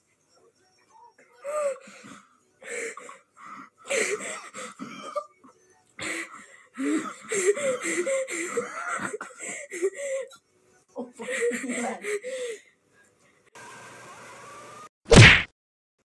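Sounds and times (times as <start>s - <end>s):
breathless gasps: 12.0s - 12.7s.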